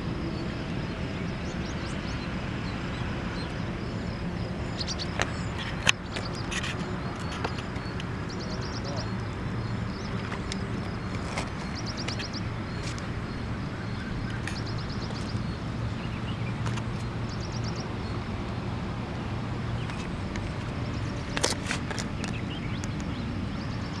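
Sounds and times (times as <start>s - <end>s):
steady low hum: 0.0s - 24.0s
rapid trill of high ticks: 1.4s - 18.6s.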